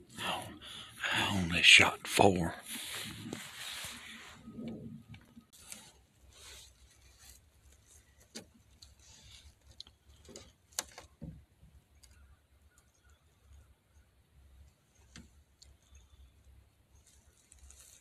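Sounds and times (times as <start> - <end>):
faint rustles and clicks: 2.7 - 13.6, 14.6 - 18.0.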